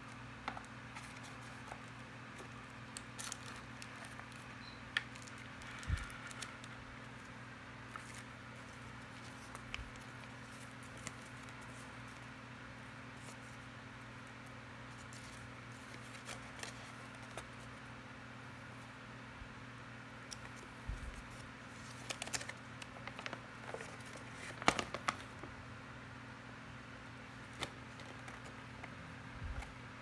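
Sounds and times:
steady low hum: 0:00.0 - 0:30.0
paper crinkling: 0:00.4 - 0:12.3, 0:14.9 - 0:17.7, 0:20.3 - 0:25.5, 0:27.3 - 0:28.8.

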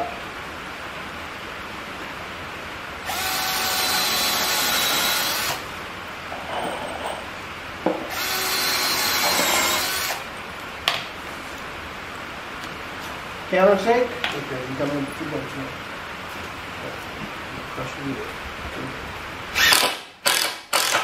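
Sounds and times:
cordless drill driving screws: 0:03.0 - 0:05.6, 0:08.1 - 0:10.3, 0:19.6 - 0:21.0.

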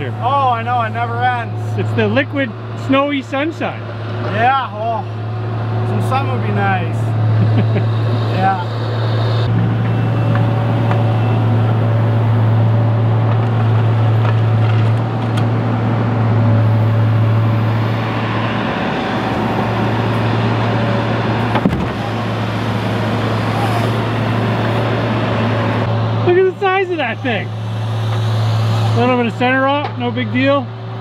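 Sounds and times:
diesel engine running under load: 0:00.0 - 0:31.0
faint hydraulic whine: 0:16.6 - 0:30.6.

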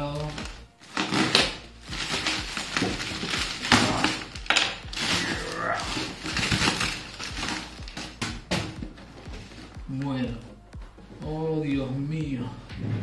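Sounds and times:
plastic packaging crinkling: 0:00.0 - 0:08.5.

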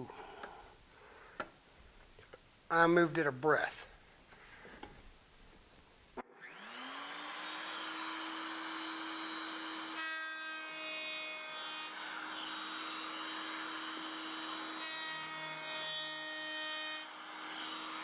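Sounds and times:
router motor whining: 0:06.2 - 0:15.5
router bit cutting wood: 0:06.2 - 0:18.0.

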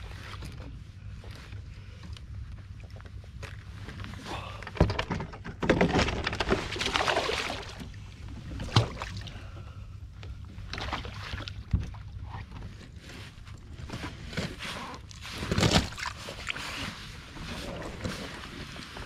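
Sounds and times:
water splashing and churning: 0:06.0 - 0:19.0.

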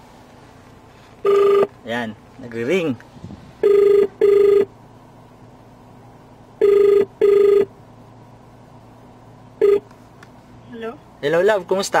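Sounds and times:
phone ringback tone: 0:01.2 - 0:01.7, 0:03.6 - 0:04.7, 0:06.6 - 0:07.7, 0:09.6 - 0:09.9.

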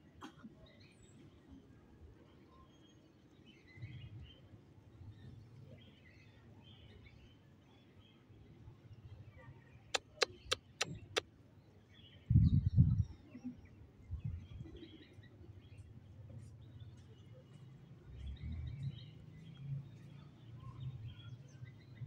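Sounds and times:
sharp clicks: 0:10.0 - 0:11.2.

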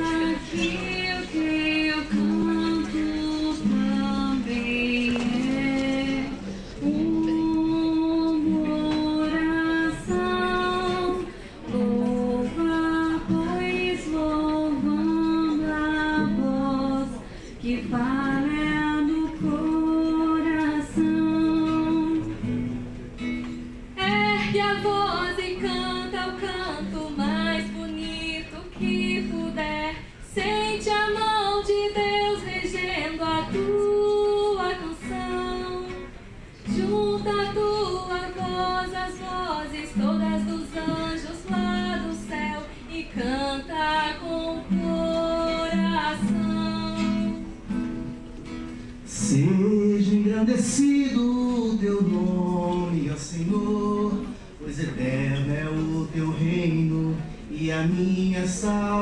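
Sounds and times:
plucked guitar: 0:00.0 - 0:59.0.

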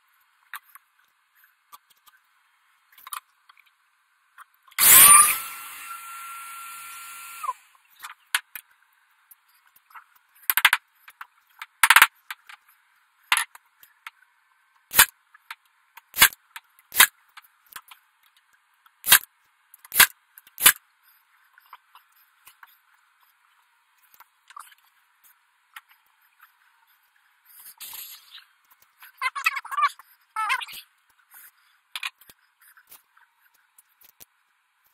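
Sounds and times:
high wavering whine: 0:04.8 - 0:07.7.

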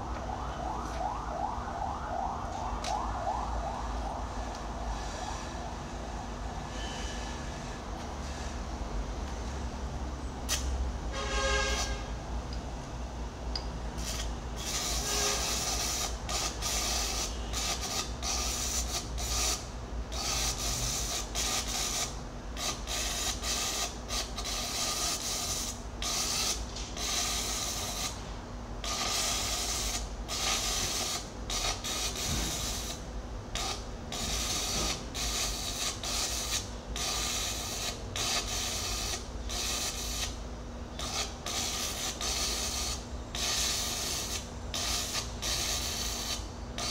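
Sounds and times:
steady low hum: 0:00.0 - 0:46.9
welding arc crackling and sizzling: 0:14.0 - 0:28.2, 0:28.8 - 0:40.4, 0:41.0 - 0:46.9.

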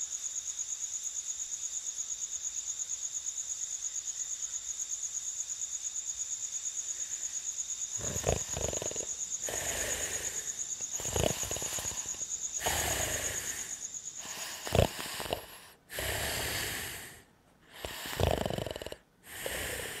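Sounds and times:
cartoon snoring: 0:07.9 - 0:20.0.

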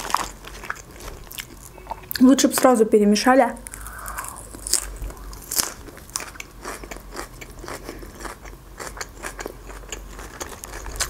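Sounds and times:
crunchy wet chewing: 0:00.0 - 0:02.2, 0:03.6 - 0:11.0.

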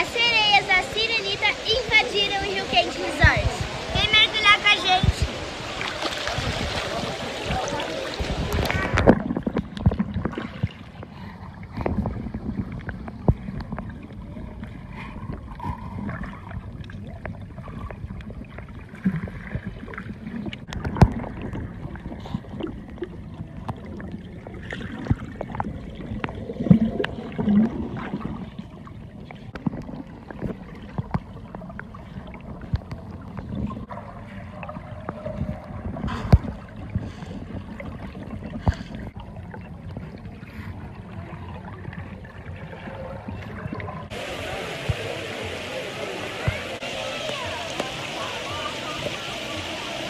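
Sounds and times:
underwater rushing and bubbling: 0:00.0 - 0:50.0
underwater knocks and clicks: 0:08.4 - 0:11.1, 0:11.7 - 0:40.6.

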